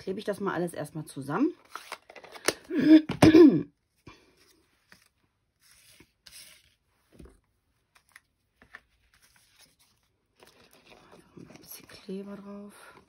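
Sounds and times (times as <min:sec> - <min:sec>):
paper and card rustling: 0:01.5 - 0:02.7, 0:04.2 - 0:13.0.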